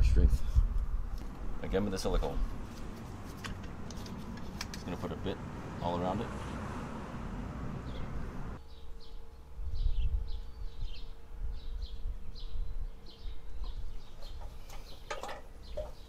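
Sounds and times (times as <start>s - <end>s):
small bird chirping: 7.8s - 16.0s.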